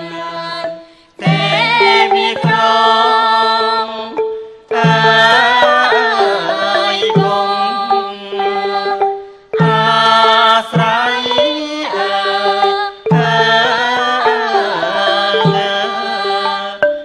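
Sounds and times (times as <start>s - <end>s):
wavering held melody: 0.0s - 17.0s
drum strokes: 0.6s - 17.0s.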